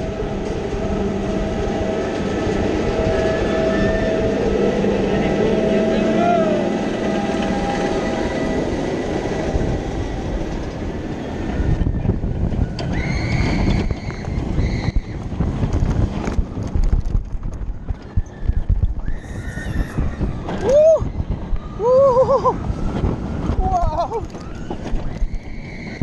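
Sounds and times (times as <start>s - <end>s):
high-pitched squeal: 0.0s - 10.4s, 11.2s - 15.2s, 18.0s - 22.0s, 24.4s - 26.0s
roller coaster rattling on track: 0.0s - 26.0s
rushing air: 0.0s - 26.0s.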